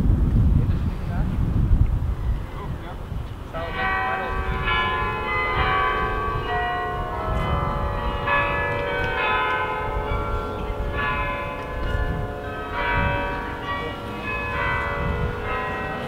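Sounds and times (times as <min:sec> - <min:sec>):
tower bells ringing: 0:03.5 - 0:16.0.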